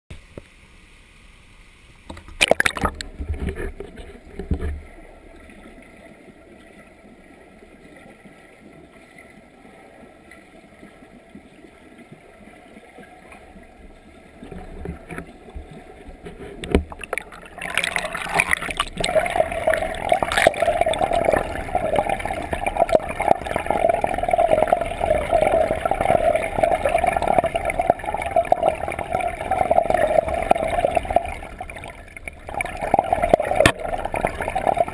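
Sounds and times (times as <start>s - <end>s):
rushing gurgling water: 2.0s - 34.9s
muffled underwater knocks: 2.1s - 4.9s, 14.5s - 19.4s.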